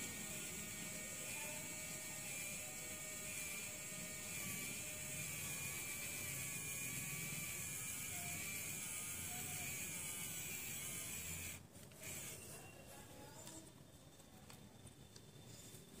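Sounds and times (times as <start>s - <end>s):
small electric motor whirring: 0.0s - 12.6s.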